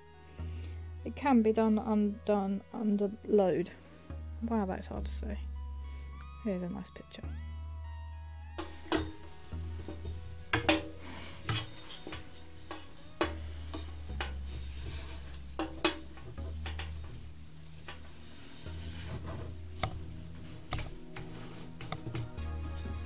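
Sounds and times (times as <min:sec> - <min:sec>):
soft background music: 0:00.0 - 0:23.0
sharp clicks and knocks: 0:08.6 - 0:14.4, 0:19.3 - 0:20.1, 0:20.7 - 0:21.0, 0:21.8 - 0:22.3.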